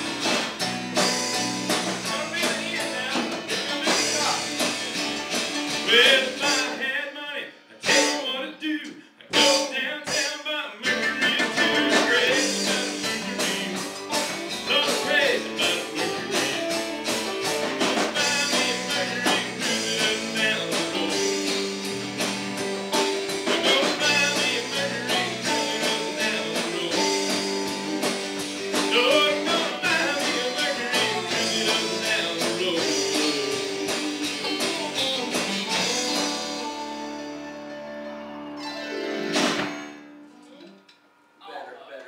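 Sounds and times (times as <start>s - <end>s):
rock band playing blues: 0.0s - 40.3s
drums: 0.0s - 41.3s
electric guitar notes bending: 10.8s - 41.3s.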